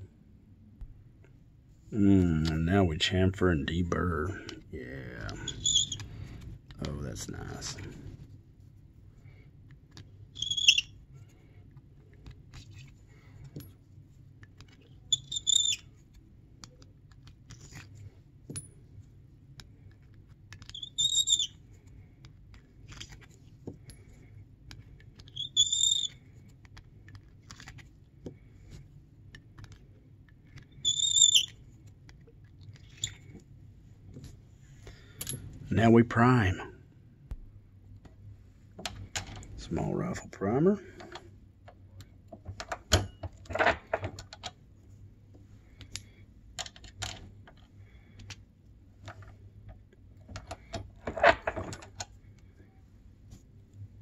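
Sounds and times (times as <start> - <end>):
blade squealing on brass: 5.5 - 6.0.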